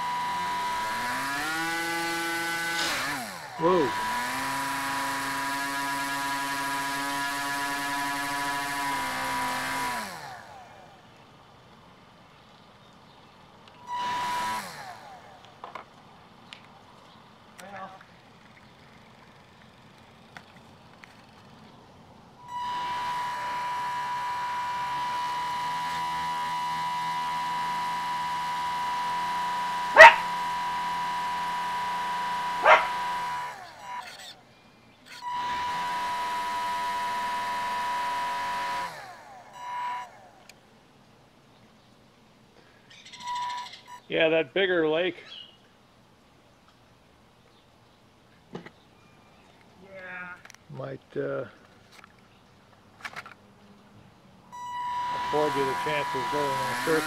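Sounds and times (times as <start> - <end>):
electric motor and propeller whine: 0.0 - 11.2, 13.7 - 15.9, 22.4 - 40.6, 43.0 - 44.1, 54.5 - 57.0
dog barking: 30.0 - 30.3, 32.6 - 33.0.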